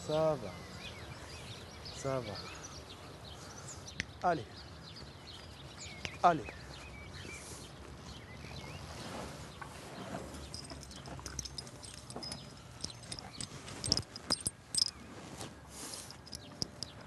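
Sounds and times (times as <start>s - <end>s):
horses shuffling and knocking: 4.9s - 17.0s
halter fittings clinking: 10.4s - 15.0s, 15.8s - 17.0s.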